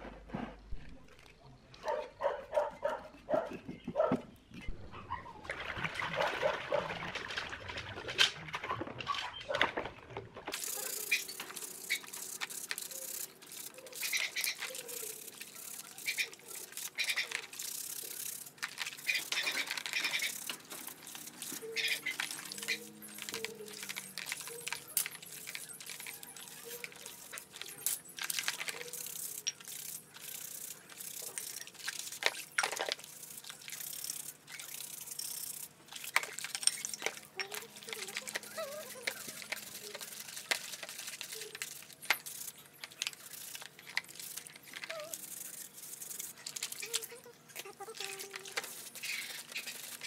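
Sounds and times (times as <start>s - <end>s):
water splashing and sloshing: 4.7s - 12.6s
scrub brush scratching metal: 10.6s - 32.2s.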